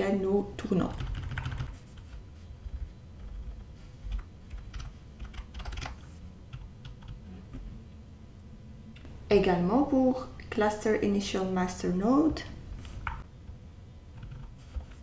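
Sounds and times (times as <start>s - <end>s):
computer keyboard typing: 0.8s - 7.2s, 14.2s - 15.0s.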